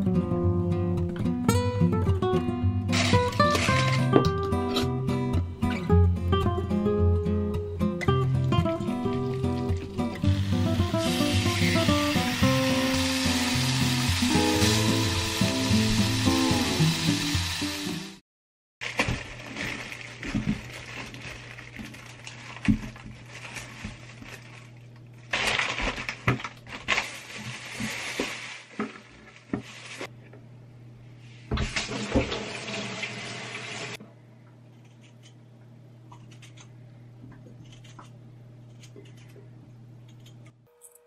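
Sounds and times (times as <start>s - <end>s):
plastic bags crinkling: 18.8s - 30.1s.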